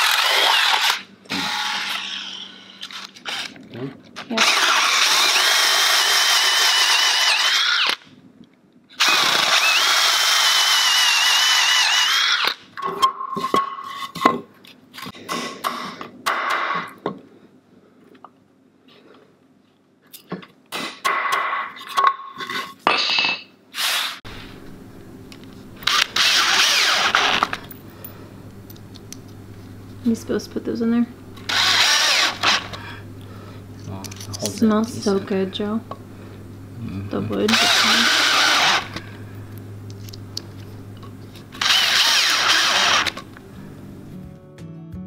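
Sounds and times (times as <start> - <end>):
drill boring into wood: 0.0 - 3.5, 4.3 - 8.0, 9.0 - 12.6, 25.8 - 27.6, 31.5 - 32.8, 37.5 - 39.0, 41.6 - 43.2.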